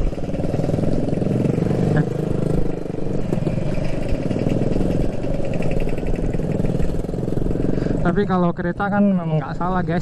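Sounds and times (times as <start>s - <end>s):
motorbikes and scooters running: 0.0s - 10.0s
motorcycle engine at low revs: 0.0s - 10.0s.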